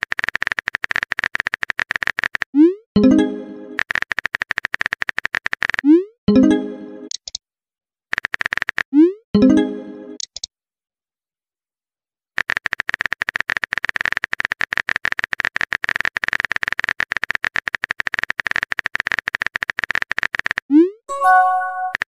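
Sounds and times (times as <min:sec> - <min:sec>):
keyboard typing clicks: 0:03.0 - 0:07.4, 0:09.5 - 0:10.5
short chiming tone: 0:21.1 - 0:22.0.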